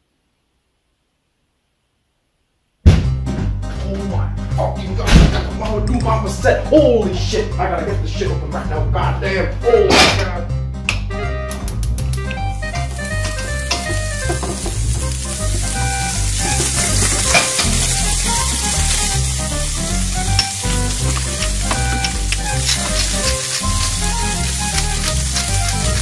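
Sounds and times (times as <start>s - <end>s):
background music with bass line: 2.9s - 26.0s
food frying sizzle: 11.6s - 26.0s.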